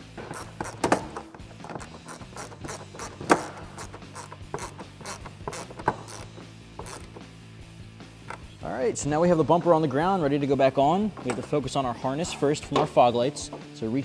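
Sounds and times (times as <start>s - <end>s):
ratchet wrench clicking: 0.3s - 7.2s.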